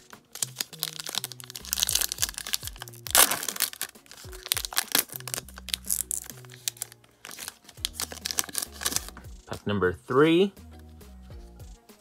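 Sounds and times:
foil wrapper crinkling and ripping: 0:00.0 - 0:09.2
background music with bass: 0:00.0 - 0:12.0.

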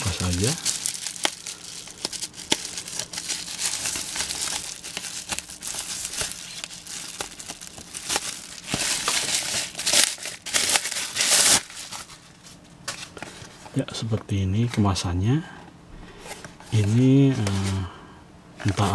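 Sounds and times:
bubble wrap crinkling and tearing: 0:00.0 - 0:12.6.

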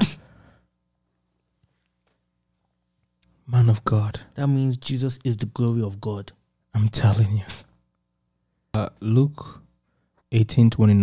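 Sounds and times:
faint low hum: 0:00.0 - 0:11.0
person speaking: 0:03.4 - 0:07.8.

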